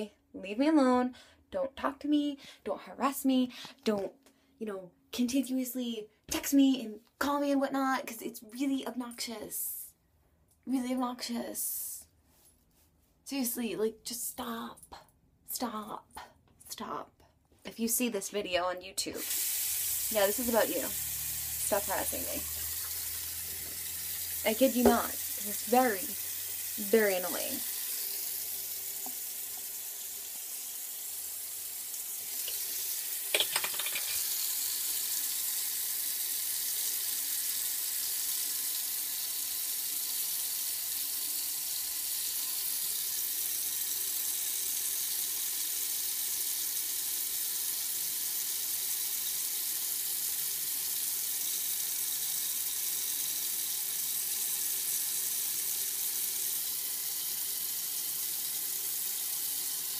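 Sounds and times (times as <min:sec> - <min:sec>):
sink faucet running: 0:19.0 - 0:59.9.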